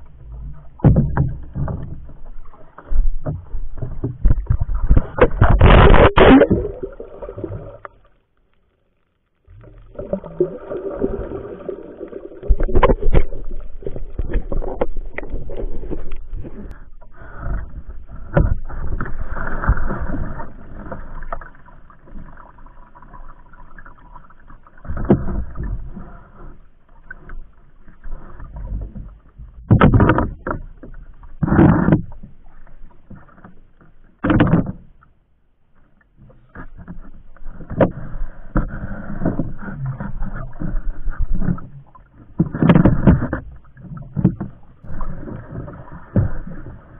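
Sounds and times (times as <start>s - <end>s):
water sloshing and splashing: 0.0s - 8.5s, 9.4s - 35.2s, 35.8s - 46.9s
knocks against wooden hull: 0.8s - 2.1s, 29.6s - 30.6s, 34.2s - 34.9s
loud thumps: 4.9s - 7.0s.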